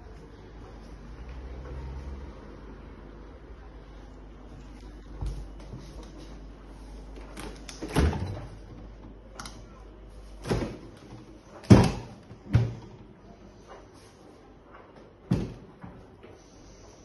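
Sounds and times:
fridge doors knocking and clicking: 7.3 - 9.5, 10.4 - 13.1, 15.2 - 16.0.

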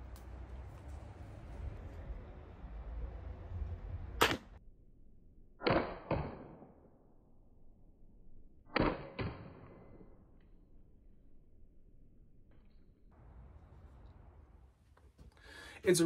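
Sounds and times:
crossbow shots: 4.2 - 4.6, 5.6 - 6.8, 8.7 - 10.0.

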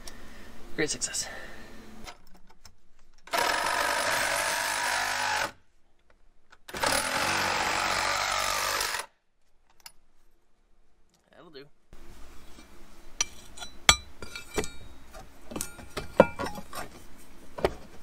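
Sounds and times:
reciprocating saw cutting metal: 3.3 - 5.6, 6.7 - 9.1.

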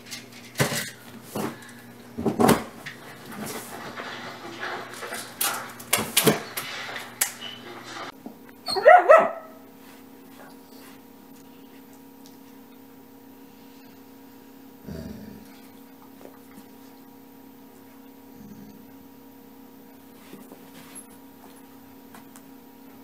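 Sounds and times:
knocks and rustles of toys: 0.0 - 8.1
dog yipping and whining: 8.6 - 9.5.

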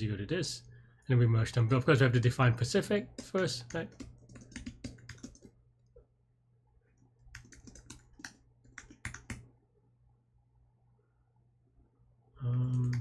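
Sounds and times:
keyboard typing: 3.1 - 5.6, 7.2 - 9.5, 12.5 - 13.0.

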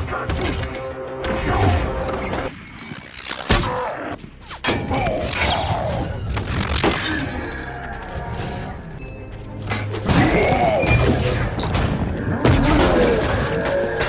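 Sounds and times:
film score: 0.0 - 14.0
metallic robot mechanisms: 2.5 - 3.8, 4.7 - 8.9.

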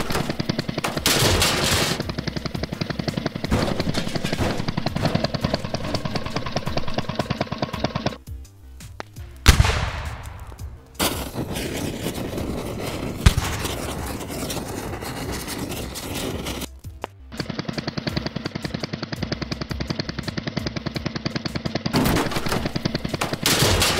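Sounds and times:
fast even rattling: 0.0 - 8.2, 10.4 - 23.9
rush of flames: 9.5 - 16.7.

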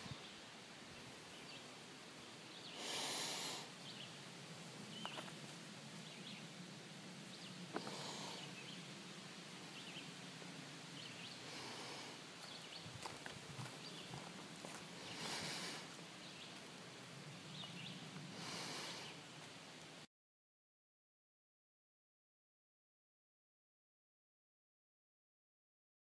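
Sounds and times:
hissing breaths: 2.7 - 3.8, 7.7 - 8.6, 11.3 - 12.3, 14.9 - 16.0, 18.3 - 19.2
footsteps on leaves: 12.4 - 15.8.

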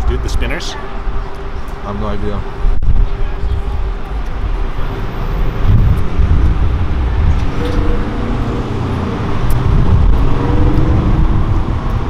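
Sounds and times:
passing traffic rumble: 0.0 - 12.0.

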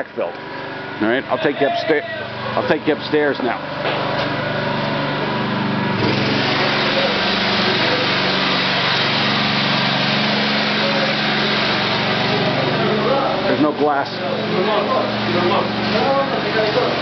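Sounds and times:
petrol generator running: 0.0 - 17.0
electric paddle mixer whirring: 3.7 - 17.0.

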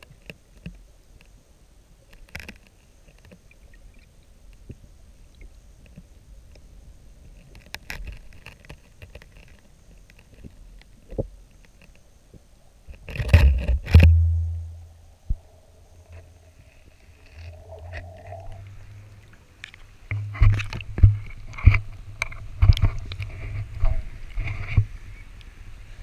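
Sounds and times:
water-muffled rumble: 12.2 - 26.0
low rumble: 13.4 - 21.2.

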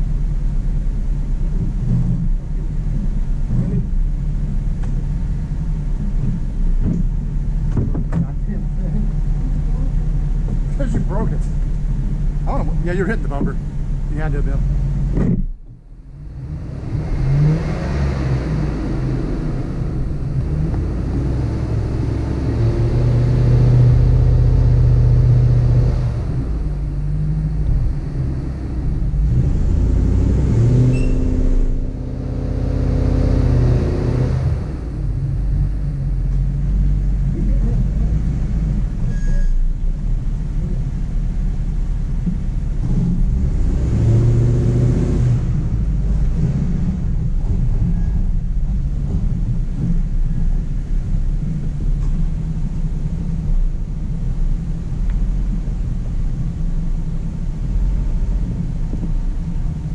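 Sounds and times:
engine revving: 16.1 - 53.5.

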